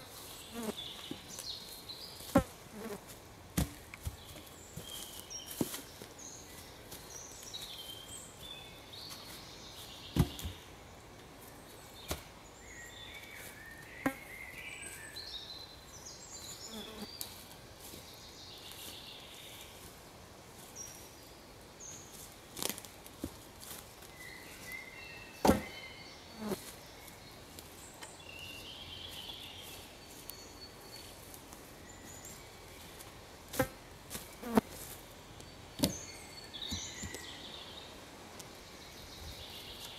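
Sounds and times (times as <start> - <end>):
wooden branches knocking: 10.2 - 10.6
birds chirping: 24.1 - 33.1, 34.2 - 39.9.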